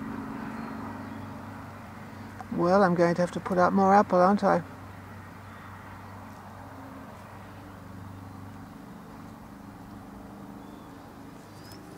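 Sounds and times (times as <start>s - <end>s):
faint bird chirps: 0.4s - 1.5s, 10.5s - 11.9s.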